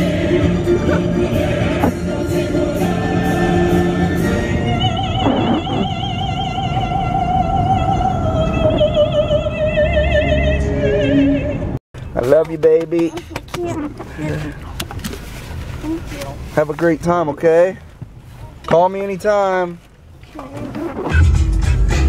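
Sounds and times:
music: 0.0 - 11.8, 21.0 - 22.0
operatic singing: 0.0 - 11.8.

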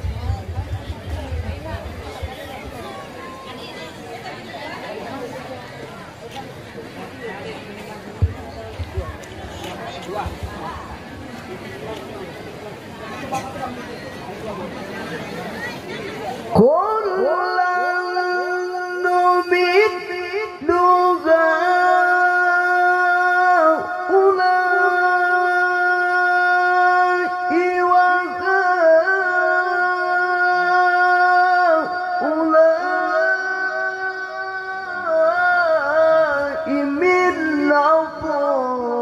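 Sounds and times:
man reciting melodically: 16.5 - 39.0.

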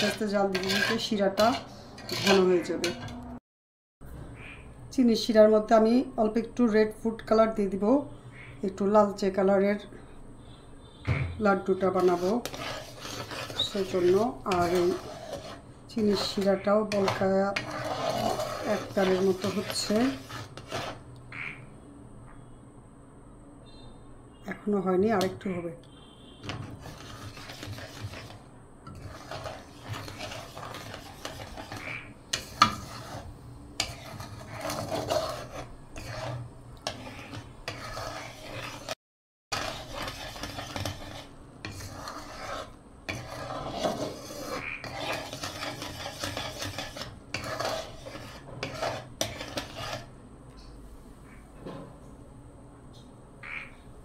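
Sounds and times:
metal spatula scraping syrup pan: 0.0 - 3.3, 11.6 - 21.1, 26.4 - 50.1.

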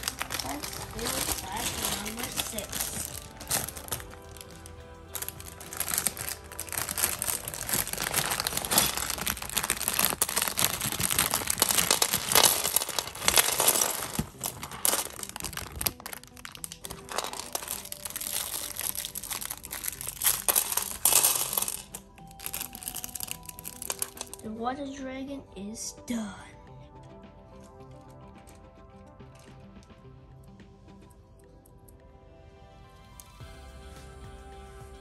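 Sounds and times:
plastic bricks clicking and rattling: 0.0 - 24.4
plastic bag crinkling: 0.0 - 24.5.

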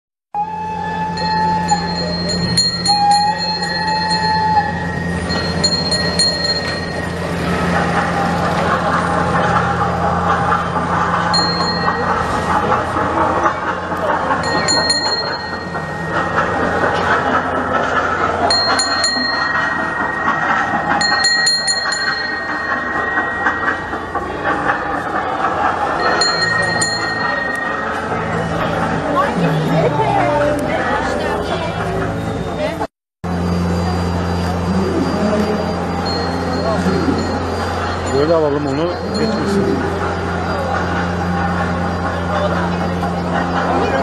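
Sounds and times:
whistle-like tone: 0.4 - 7.3
road train engine drone: 0.4 - 44.0
bell ringing: 1.0 - 8.6, 10.8 - 13.1, 14.0 - 41.8
sharp ringing dings: 1.1 - 7.2, 14.4 - 16.8, 18.5 - 24.9, 26.0 - 28.6.

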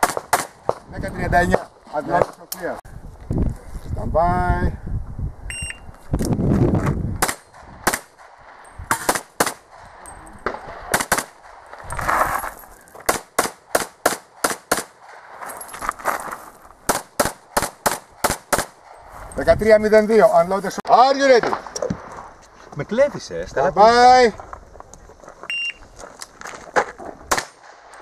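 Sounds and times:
pistol shots: 0.0 - 0.8, 7.2 - 9.8, 10.4 - 11.6, 13.1 - 15.2, 16.9 - 18.9, 27.3 - 28.0.

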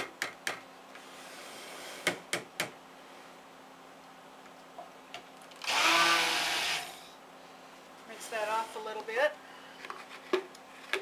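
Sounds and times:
blender whirring: 5.5 - 7.1.

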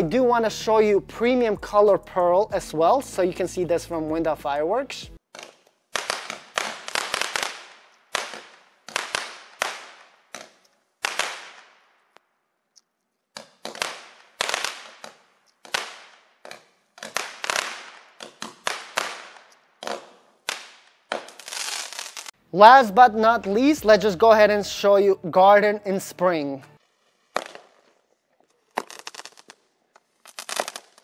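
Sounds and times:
fireworks shots popping: 5.4 - 12.2, 13.4 - 22.4, 26.8 - 31.0.

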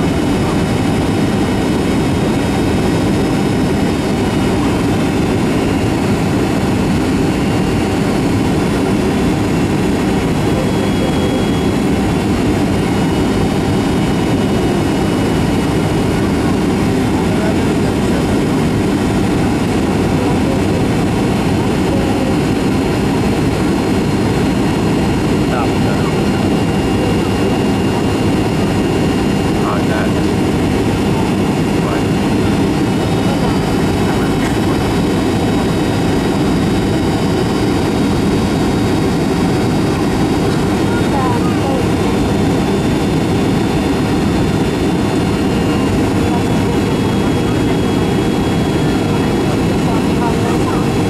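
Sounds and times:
jet engine drone: 0.0 - 51.0
faint high whine: 10.0 - 14.5.

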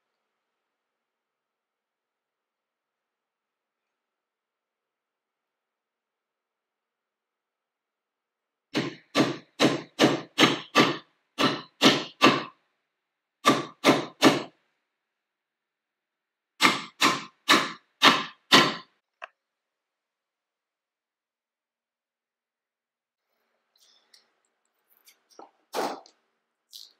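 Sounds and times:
hammer tapping staples: 8.7 - 12.5, 13.4 - 14.5, 16.6 - 18.9.

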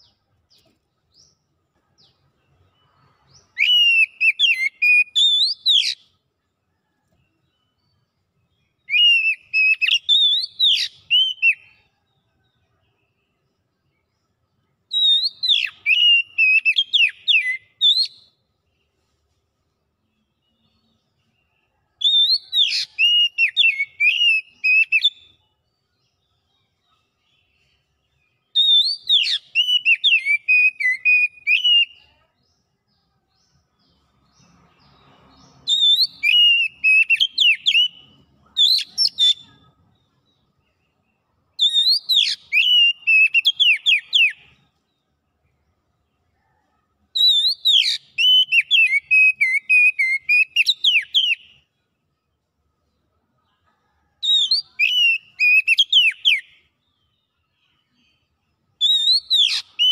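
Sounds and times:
bird singing whistled phrases: 3.3 - 6.1, 8.8 - 11.8, 14.9 - 18.4, 22.0 - 25.3, 28.5 - 32.1, 35.6 - 39.7, 41.6 - 44.6, 47.2 - 51.5, 54.2 - 56.6, 58.8 - 59.9.

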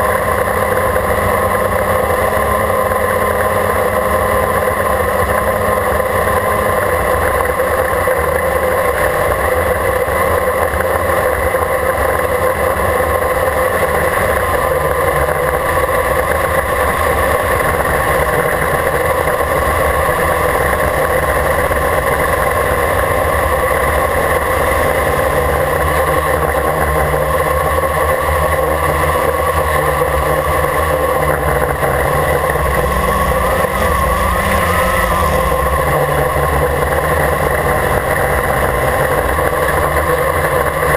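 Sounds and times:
quadcopter motors whining: 15.6 - 40.9.

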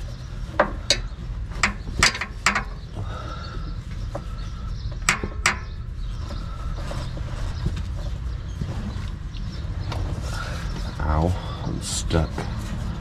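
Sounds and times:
tools knocking on metal: 5.0 - 5.8.

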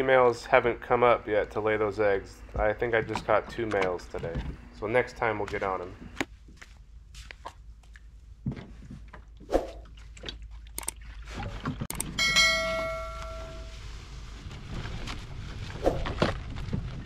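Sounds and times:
footsteps: 5.4 - 7.6
click and bell chime: 12.0 - 13.8.

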